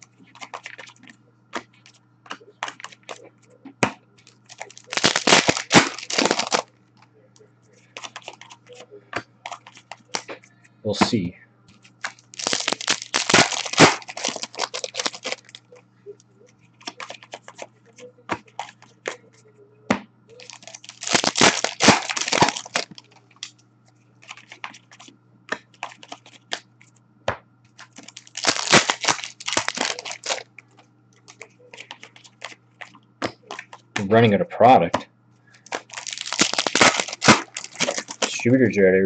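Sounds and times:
card pack wrappers tearing: 0:00.3 - 0:01.1, 0:04.2 - 0:06.7, 0:07.9 - 0:08.8, 0:09.5 - 0:10.3, 0:11.8 - 0:15.7, 0:16.8 - 0:17.7, 0:20.3 - 0:23.5, 0:24.2 - 0:25.1, 0:25.7 - 0:26.6, 0:27.8 - 0:30.5, 0:31.2 - 0:34.1, 0:35.6 - 0:38.4
cards clicking and tapping: 0:00.3 - 0:03.2, 0:07.9 - 0:10.4, 0:11.7 - 0:15.6, 0:16.8 - 0:19.2, 0:24.2 - 0:34.1.

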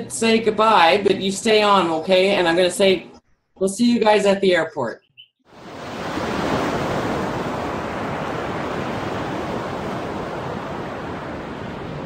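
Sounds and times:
ocean surf on beach: 0:05.5 - 0:12.0.

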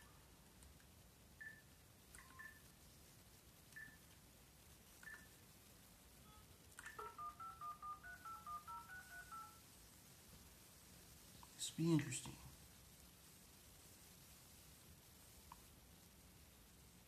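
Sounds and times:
phone keypad beeps: 0:01.4 - 0:02.7, 0:03.8 - 0:04.0, 0:05.0 - 0:05.4, 0:06.2 - 0:09.6
touch-tone dialing tones: 0:06.2 - 0:09.6.

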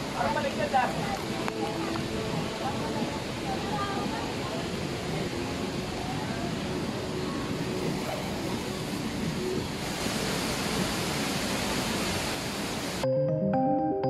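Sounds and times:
waterfall rushing: 0:00.0 - 0:13.0
gentle piano background music: 0:13.0 - 0:14.0.

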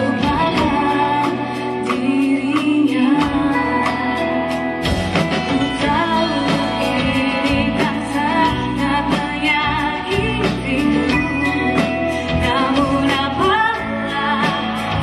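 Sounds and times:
live pop band playing: 0:00.0 - 0:15.0
woman singing: 0:00.0 - 0:15.0.

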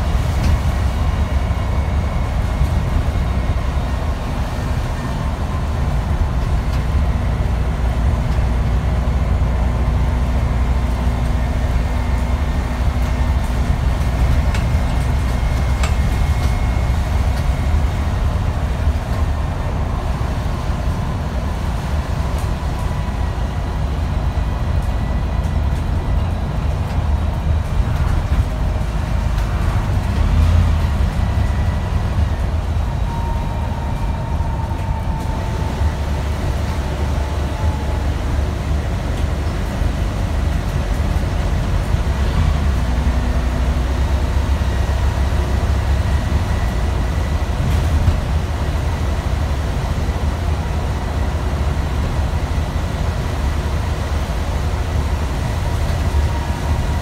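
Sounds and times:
bus engine and road noise: 0:00.0 - 0:57.0
faint high whine: 0:33.0 - 0:38.2.

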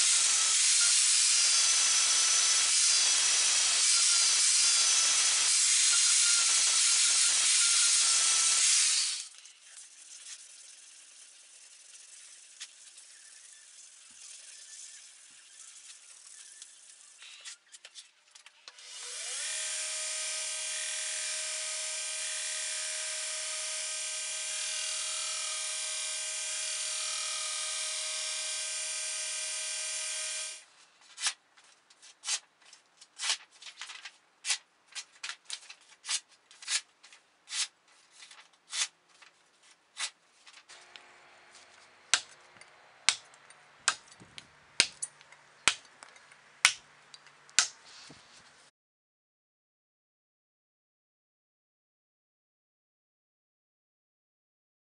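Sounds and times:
belt grinder whining: 0:00.0 - 0:09.3, 0:18.8 - 0:30.6, 0:40.7 - 0:43.5
abrasive paper scraping steel: 0:09.1 - 0:17.7.

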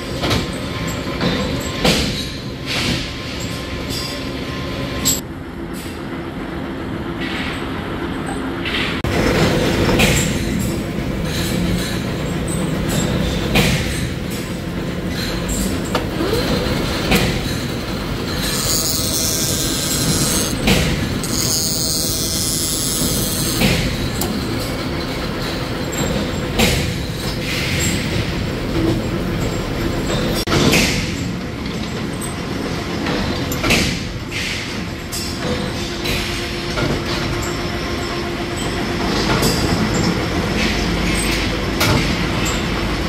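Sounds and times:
metal clanks: 0:08.6 - 0:37.6
metal lathe running: 0:09.1 - 0:30.4.

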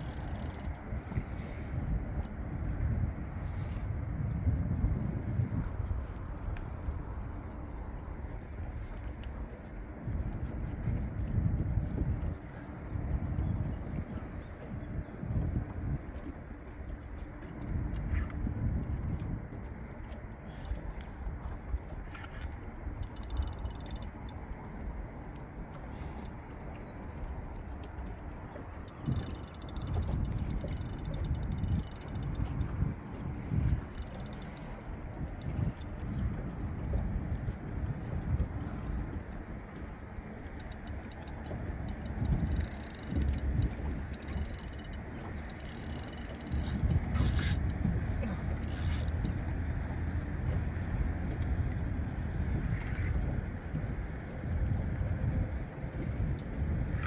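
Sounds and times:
fishing reel clicking: 0:00.0 - 0:00.8, 0:22.3 - 0:24.4, 0:28.9 - 0:32.7, 0:34.0 - 0:35.9, 0:40.6 - 0:47.8, 0:48.6 - 0:49.4
low rumble: 0:34.6 - 0:40.5.

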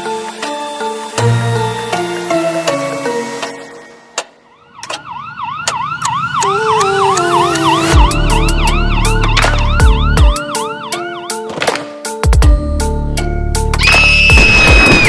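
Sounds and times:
siren wailing: 0:04.4 - 0:11.5, 0:13.8 - 0:15.0
stepping melody with ticking beats: 0:05.7 - 0:14.8
heavy bass: 0:07.7 - 0:10.4.

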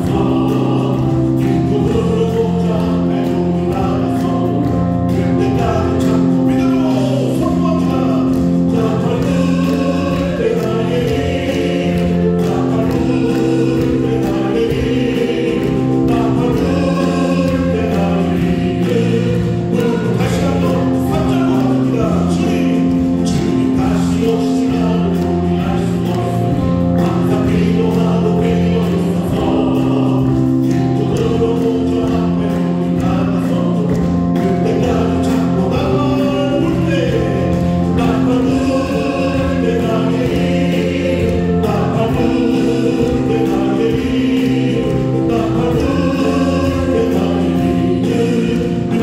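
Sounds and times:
bass guitar: 0:00.0 - 0:49.0
group singing a gospel song: 0:00.0 - 0:49.0
keyboard chords: 0:00.0 - 0:49.0.

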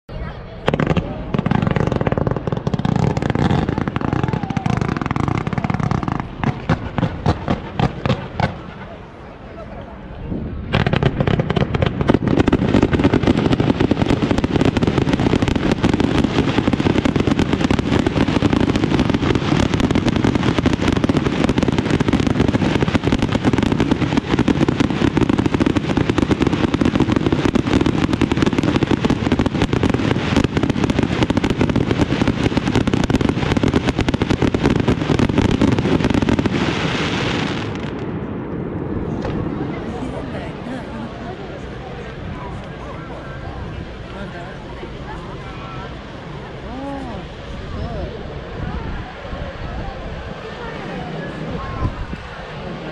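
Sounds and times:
fireworks popping and crackling: 0:00.6 - 0:09.1, 0:10.6 - 0:42.8.

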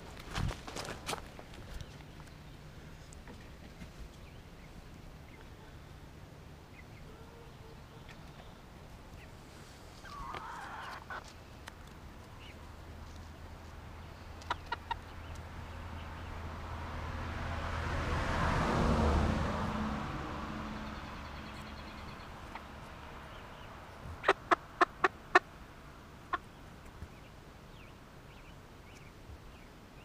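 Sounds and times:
hens clucking softly: 0:10.0 - 0:11.3, 0:14.4 - 0:15.4, 0:24.2 - 0:25.5.

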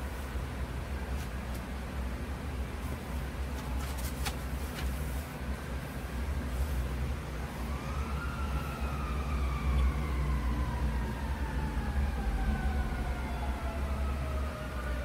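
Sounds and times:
siren wailing: 0:07.6 - 0:15.0.

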